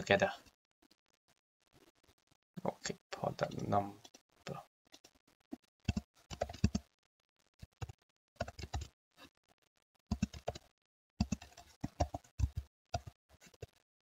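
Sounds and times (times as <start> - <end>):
typing on computer keyboard: 5.8 - 6.9, 7.7 - 8.9, 10.1 - 13.8.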